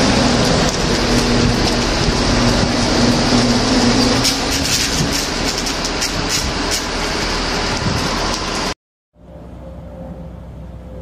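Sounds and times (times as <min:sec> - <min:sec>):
electric crackles and pops: 0:00.0 - 0:08.7.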